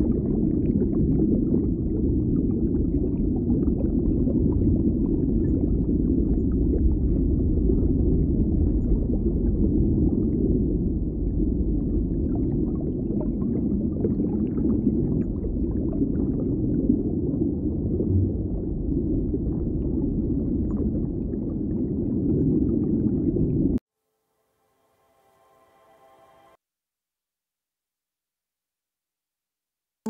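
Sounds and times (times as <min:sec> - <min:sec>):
low rumble: 0:00.0 - 0:23.8.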